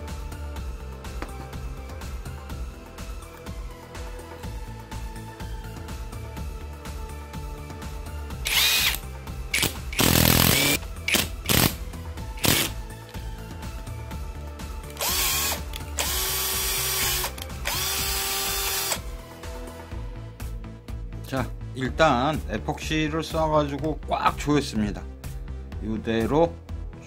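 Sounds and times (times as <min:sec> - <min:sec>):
background music: 0:00.0 - 0:27.0
cordless drill motor spinning: 0:08.4 - 0:11.7, 0:12.4 - 0:12.7, 0:14.9 - 0:19.0.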